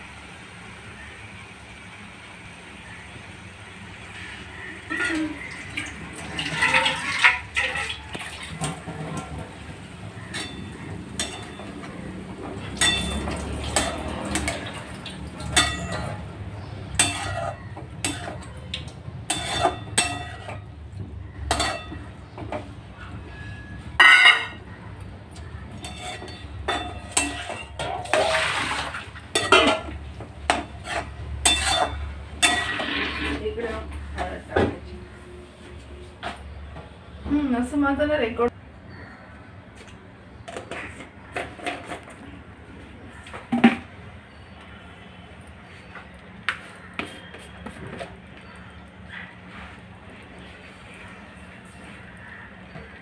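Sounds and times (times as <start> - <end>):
spatula scraping metal pan: 15.5 - 18.5, 19.3 - 20.7, 25.8 - 29.9, 30.5 - 33.8.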